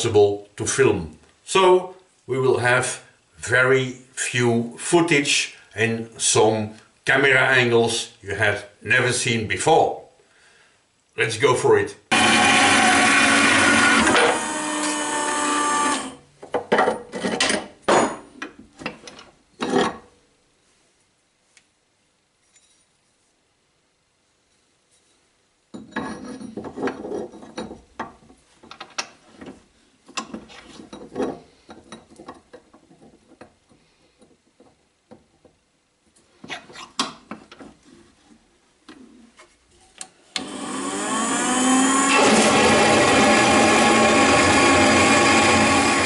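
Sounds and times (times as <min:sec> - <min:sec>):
band saw motor running: 0:12.1 - 0:16.2, 0:40.4 - 0:46.0
metal knocks and clatter: 0:25.8 - 0:33.6.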